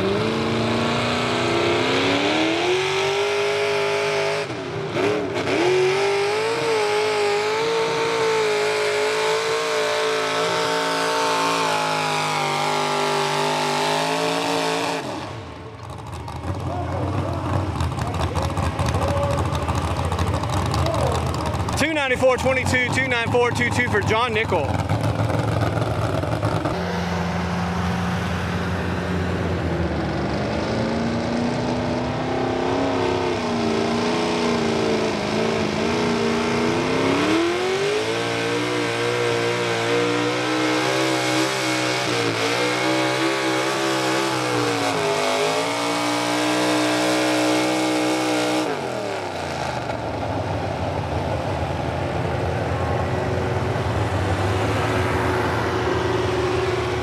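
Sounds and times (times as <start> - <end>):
tractor engine running under load: 15.6 - 27.4.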